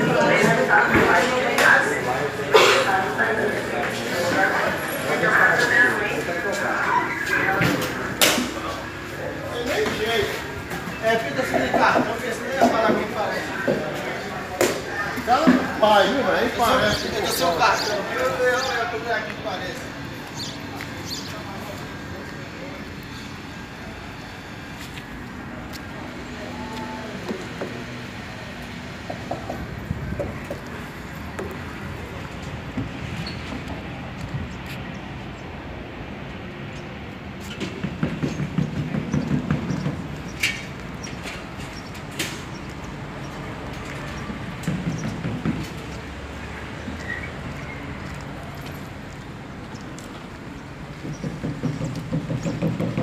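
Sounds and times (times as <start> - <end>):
bus diesel engine idling: 0.0 - 32.9.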